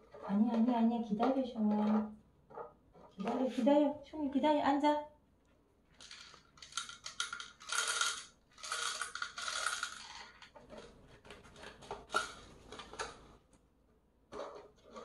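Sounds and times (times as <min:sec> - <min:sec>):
kibble rattling in plastic bottles: 0:05.9 - 0:13.4.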